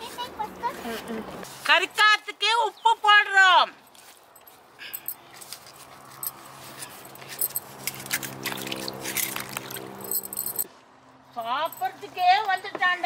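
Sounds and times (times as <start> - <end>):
water sloshing in steel bowl: 7.6 - 10.0.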